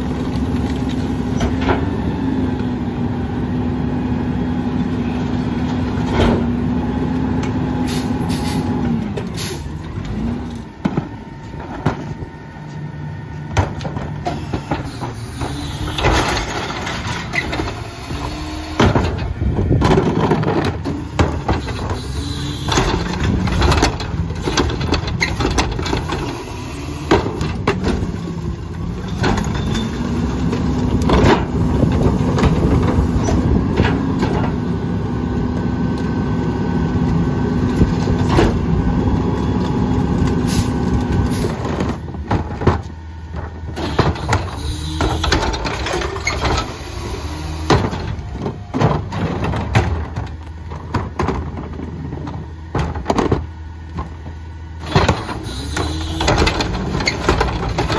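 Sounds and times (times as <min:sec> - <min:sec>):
garbage truck engine: 0:00.0 - 0:57.9
cart tipper knocks and clatter: 0:13.5 - 0:17.8, 0:18.7 - 0:22.0, 0:22.6 - 0:26.4, 0:47.6 - 0:54.2, 0:54.8 - 0:57.9.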